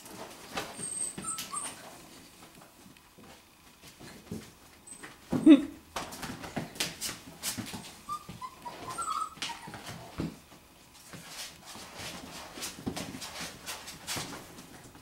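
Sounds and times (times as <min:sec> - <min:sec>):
puppies moving about: 0:00.0 - 0:15.0
puppies whimpering: 0:00.6 - 0:02.0, 0:07.8 - 0:10.2.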